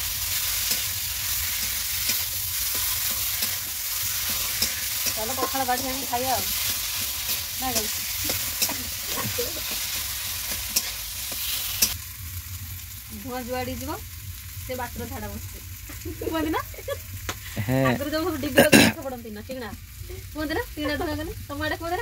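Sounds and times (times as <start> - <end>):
food sizzling in oil: 0.0 - 22.0
metal spatula scraping pan: 0.5 - 12.0.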